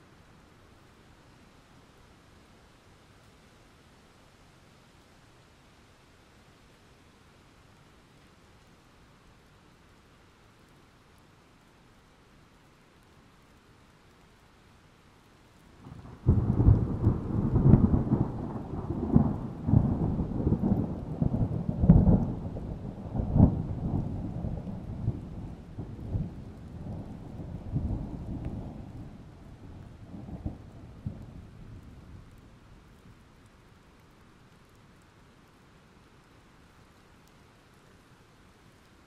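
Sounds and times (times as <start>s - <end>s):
rolling thunder rumble: 15.8s - 32.4s.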